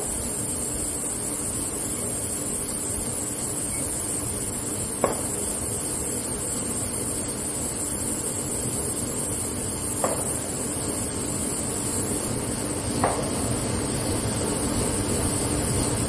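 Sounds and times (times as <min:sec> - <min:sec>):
steady hiss: 0:00.0 - 0:16.0
sharp chirp-like click: 0:03.6 - 0:04.0.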